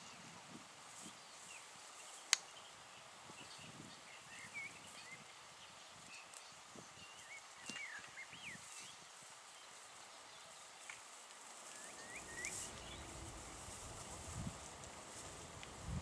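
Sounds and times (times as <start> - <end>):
songbird whistling: 7.1 - 8.6, 11.7 - 13.4
deer tearing grass: 11.3 - 16.0
low rumble: 11.9 - 16.0.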